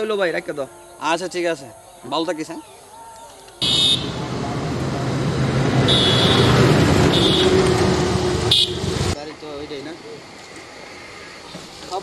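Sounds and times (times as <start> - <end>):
motorcycle passing: 3.6 - 9.2
truck driving past: 3.6 - 9.2.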